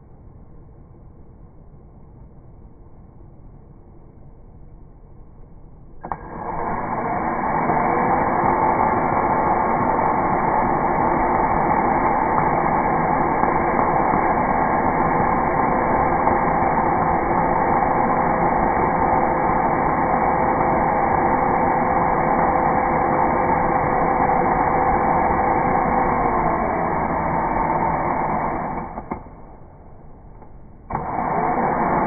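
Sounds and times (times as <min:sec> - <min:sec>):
cordless drill boring into wood: 0:06.0 - 0:29.2, 0:30.9 - 0:32.0.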